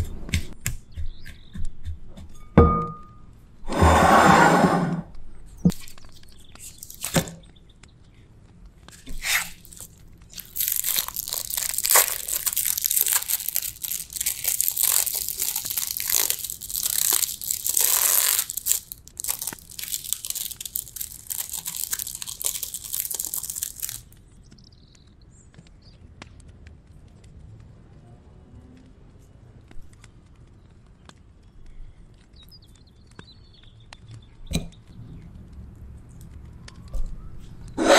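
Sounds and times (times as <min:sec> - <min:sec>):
plastic pack crinkling: 0:05.7 - 0:07.5, 0:08.9 - 0:24.2.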